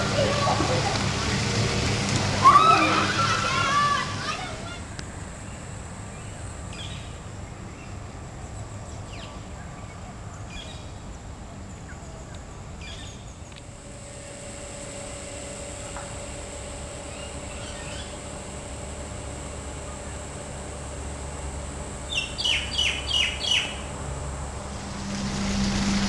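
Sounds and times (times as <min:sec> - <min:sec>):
high-pitched drone: 0:13.9 - 0:26.0
bird chirps: 0:22.1 - 0:23.9
low rumble: 0:23.8 - 0:26.0.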